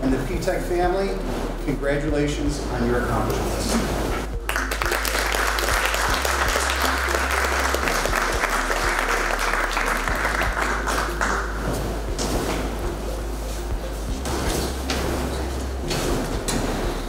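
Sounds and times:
audience applauding: 0:04.4 - 0:11.6.

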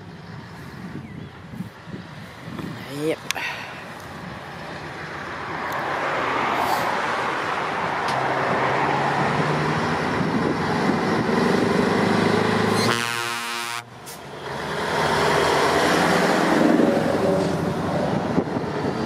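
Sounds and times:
car tyre noise passing: 0:03.4 - 0:19.0
diesel truck engine droning: 0:07.0 - 0:19.0.

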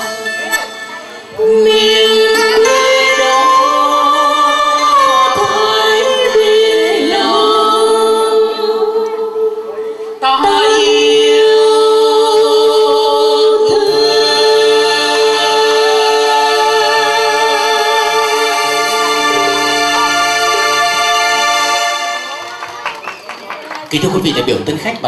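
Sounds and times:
man and woman singing duet: 0:01.4 - 0:21.4
electronic keyboard music: 0:16.6 - 0:23.1.

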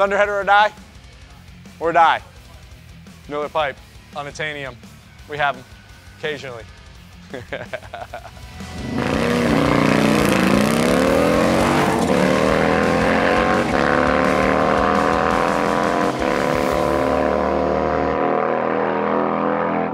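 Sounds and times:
motorcycle engine accelerating hard: 0:08.4 - 0:19.9.

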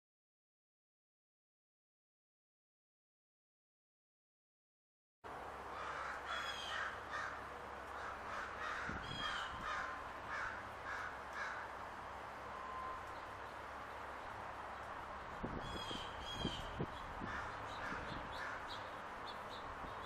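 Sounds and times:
steady background hiss: 0:05.3 - 0:20.0
birds calling harshly: 0:05.7 - 0:11.8, 0:12.4 - 0:20.0.

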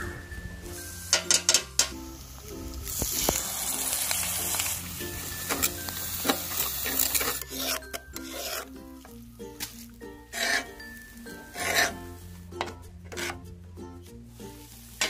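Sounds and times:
background music: 0:00.0 - 0:15.0
frying sizzle: 0:00.9 - 0:07.4
metal spatula scraping on pan: 0:05.4 - 0:09.0, 0:10.2 - 0:13.4.

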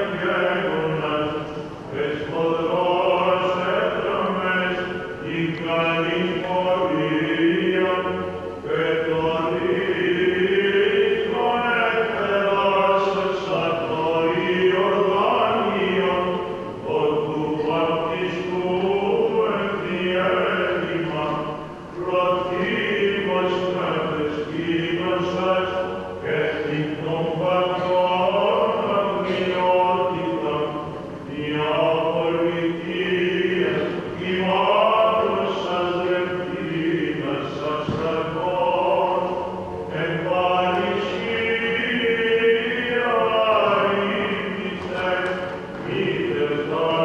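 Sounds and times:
low held drone note: 0:00.0 - 0:47.0
voices chanting a melody: 0:00.0 - 0:47.0.

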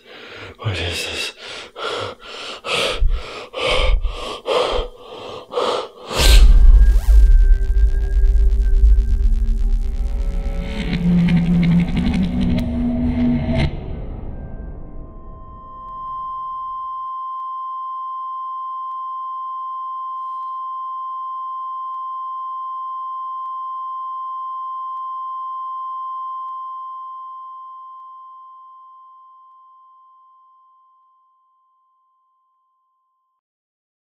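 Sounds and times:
high-pitched electronic tone: 0:06.1 - 0:12.7.

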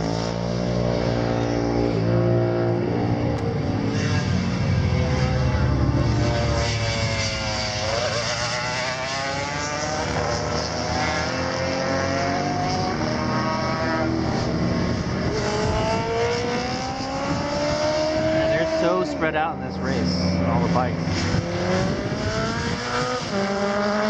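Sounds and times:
racing motorcycles passing: 0:00.0 - 0:24.0.

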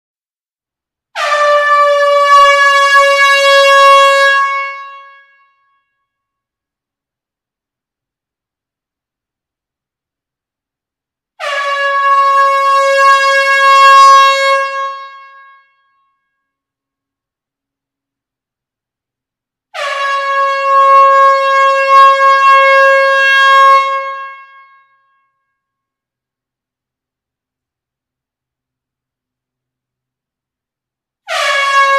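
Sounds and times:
air horn blast: 0:01.2 - 0:05.4, 0:11.4 - 0:15.7, 0:19.8 - 0:24.8, 0:31.2 - 0:31.9.

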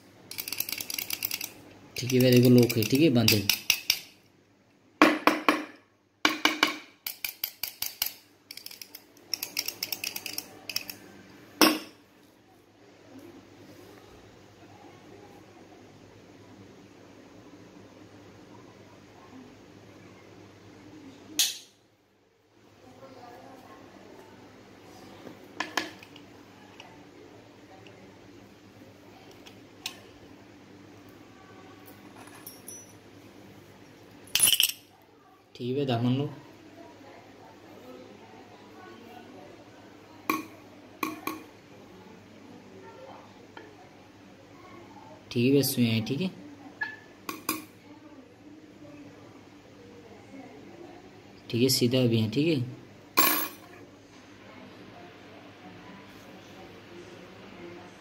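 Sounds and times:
padlock rattling and clicking: 0:00.3 - 0:04.1, 0:07.1 - 0:11.0.

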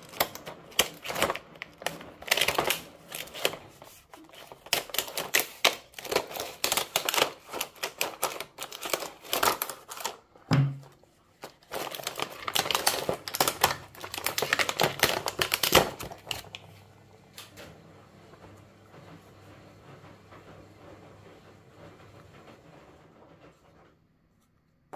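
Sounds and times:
plastic packaging crackling: 0:00.0 - 0:16.8.

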